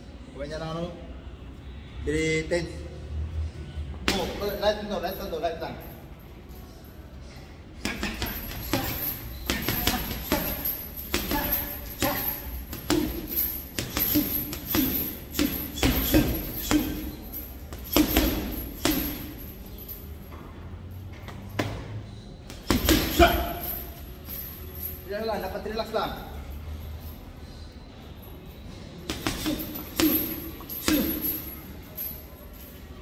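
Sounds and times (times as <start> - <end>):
chains jingling: 4.4 - 21.1, 22.6 - 33.0
gloves punching a bag: 7.9 - 19.3, 22.5 - 23.7, 29.1 - 31.4.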